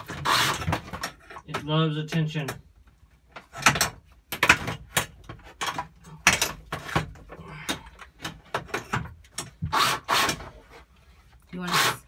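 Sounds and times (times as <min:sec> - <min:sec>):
sharp knocks and clatters: 0:03.3 - 0:09.7
cordless drill: 0:09.7 - 0:10.4.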